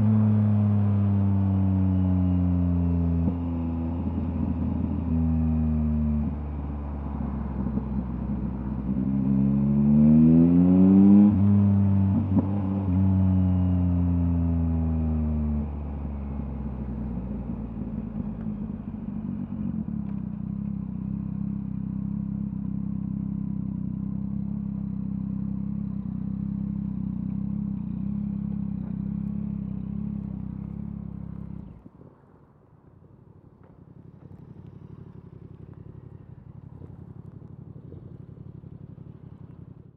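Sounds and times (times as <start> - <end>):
motorcycle engine idling: 15.7 - 31.9, 32.8 - 39.9.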